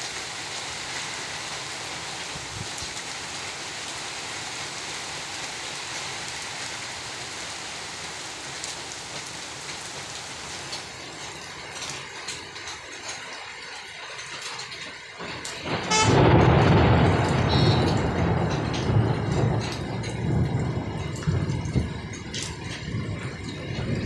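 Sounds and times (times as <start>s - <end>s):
heavy rain falling: 0.0s - 24.0s
single raindrops: 14.7s - 24.0s.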